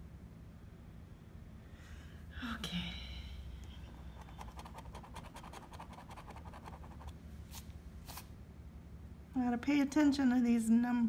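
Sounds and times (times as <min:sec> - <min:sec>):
coin scratching a ticket: 0:04.2 - 0:07.1.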